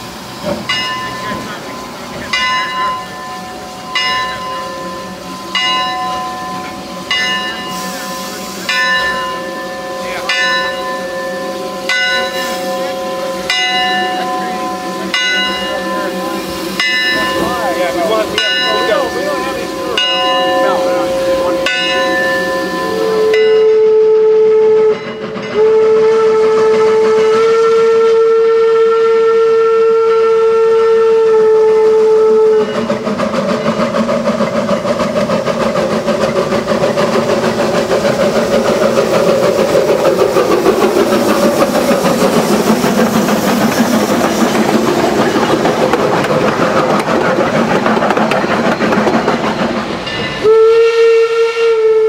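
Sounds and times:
steam locomotive chuffing: 0.0s - 52.0s
locomotive bell ringing: 0.6s - 25.8s, 32.6s - 50.6s
steam whistle blasts: 18.8s - 32.9s, 50.4s - 52.0s.

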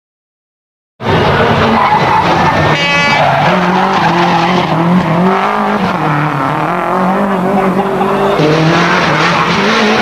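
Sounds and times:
rally car engine running hard: 1.0s - 10.0s
tyres skidding: 1.0s - 10.0s.

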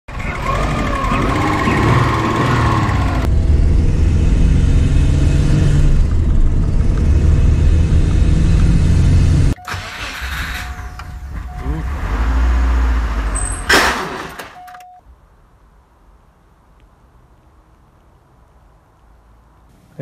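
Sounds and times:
engine revving: 0.1s - 14.4s.

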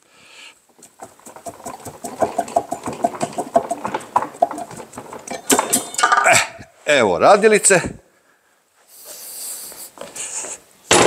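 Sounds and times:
metallic clinks and knocks: 0.8s - 6.3s.

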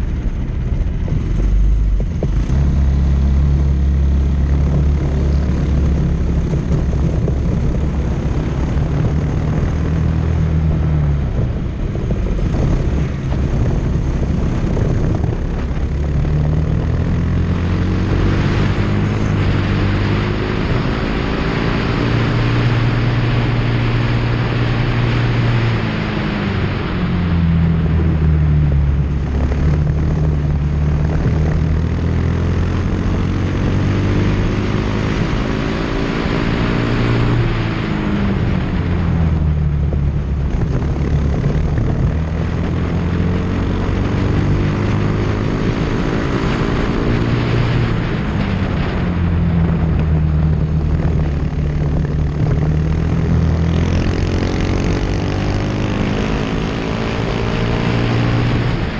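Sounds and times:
race car engine: 0.0s - 58.9s
wind rushing over microphone: 0.0s - 58.9s.

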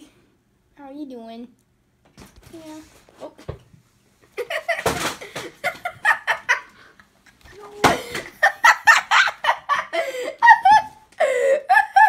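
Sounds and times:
boy laughing hard: 4.4s - 6.9s, 7.5s - 12.0s.

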